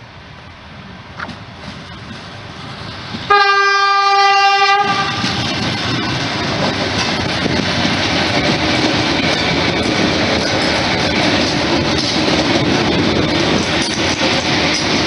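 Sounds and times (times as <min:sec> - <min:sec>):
train wheels rumbling on rails: 0:00.0 - 0:15.0
wheels clicking over rail joints: 0:04.8 - 0:15.0.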